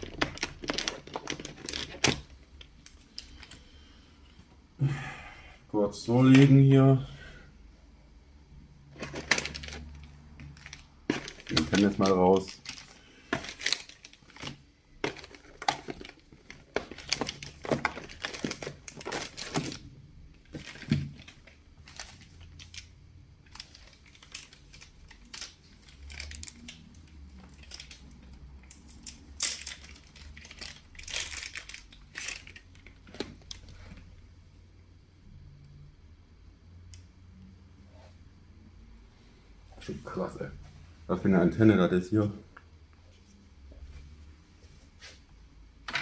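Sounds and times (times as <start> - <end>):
plastic sleeves crinkling: 0.0 - 3.7, 9.0 - 34.1.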